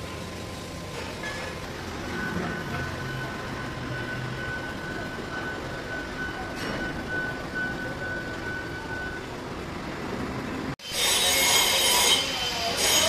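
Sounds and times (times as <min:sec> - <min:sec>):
loud noise with squealing tones: 0:10.8 - 0:13.0.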